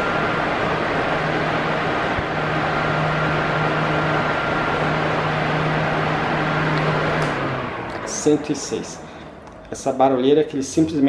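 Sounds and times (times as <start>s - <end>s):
electric fan running: 0.0s - 11.0s.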